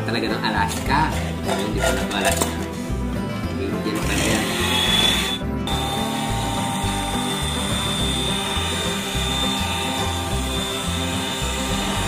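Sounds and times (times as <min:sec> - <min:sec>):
background music: 0:00.0 - 0:12.0
electric hand mixer whirring: 0:04.0 - 0:12.0.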